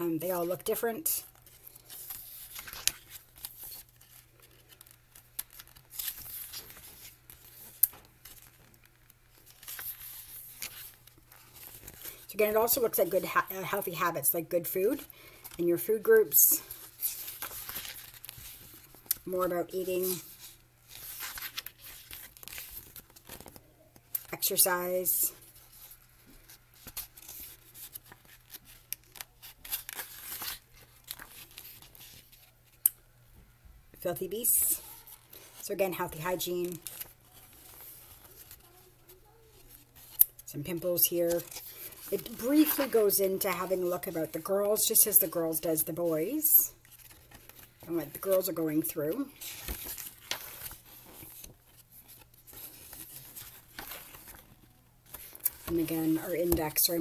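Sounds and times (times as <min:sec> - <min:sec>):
book pages turning: 0:01.3 - 0:12.3, 0:16.7 - 0:19.3, 0:20.0 - 0:24.3, 0:25.5 - 0:32.9, 0:34.6 - 0:44.8, 0:46.8 - 0:57.0.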